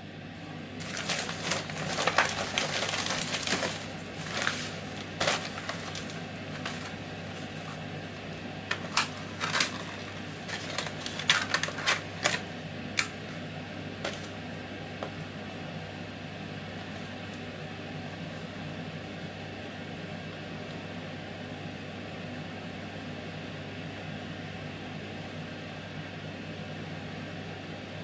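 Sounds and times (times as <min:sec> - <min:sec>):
steady low hum: 0:00.0 - 0:28.0
cardboard box crackles and clicks: 0:00.8 - 0:07.6, 0:08.7 - 0:12.4
plastic packaging crinkling: 0:00.8 - 0:07.8, 0:08.7 - 0:12.5.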